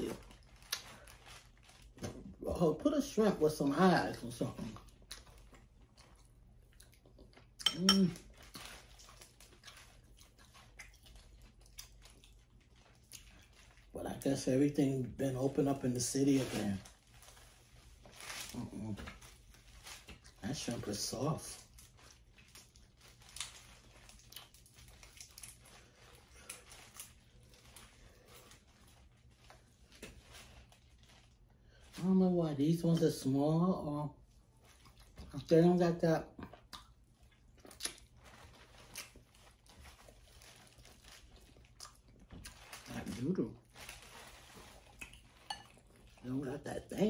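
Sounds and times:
shrimp shells crinkling: 0.0s - 2.3s, 21.6s - 32.0s, 37.5s - 46.2s
low room hum: 0.0s - 47.0s.

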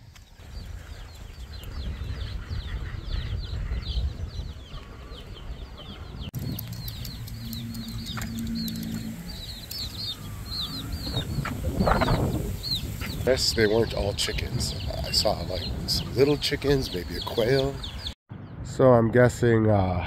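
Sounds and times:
chicks chirping: 0.6s - 18.2s
low rumble: 6.2s - 13.1s.

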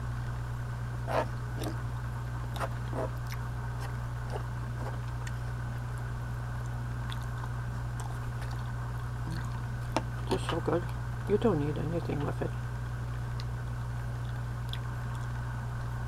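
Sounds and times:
steady low hum: 0.0s - 16.0s
soft chewing: 1.0s - 1.9s, 2.5s - 11.0s, 13.1s - 15.9s.

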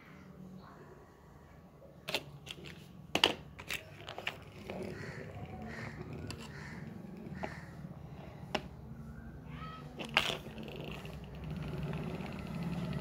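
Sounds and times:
plastic toys clicking and knocking: 2.1s - 7.6s, 10.0s - 13.0s.

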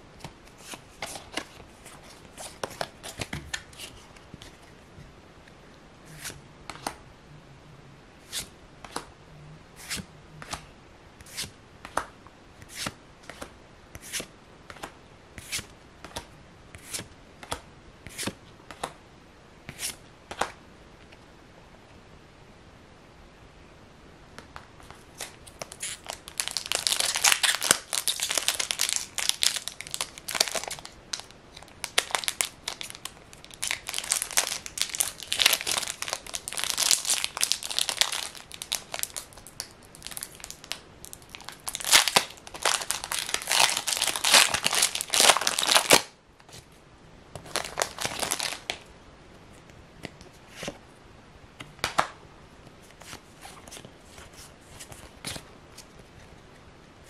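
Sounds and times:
foil wrapper tearing and crinkling: 25.6s - 46.1s, 47.4s - 48.8s.

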